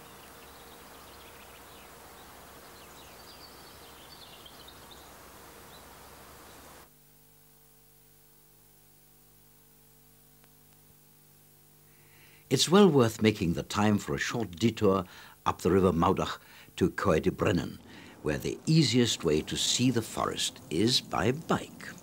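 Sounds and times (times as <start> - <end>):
faint bird chirps: 0.0 - 6.8
faint steady hum: 0.0 - 22.0
open-air background noise: 0.0 - 22.0.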